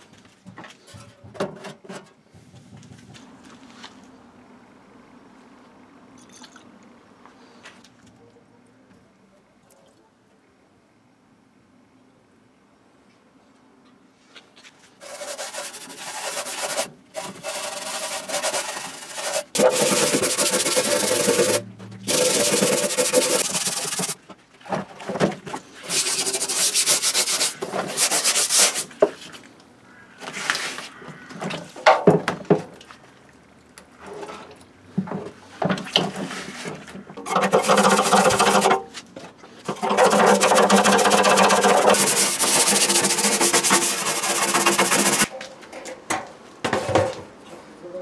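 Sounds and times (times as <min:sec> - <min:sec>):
pad scrubbing wet metal: 0:15.0 - 0:24.2, 0:25.8 - 0:29.3, 0:37.2 - 0:38.8, 0:39.6 - 0:45.3.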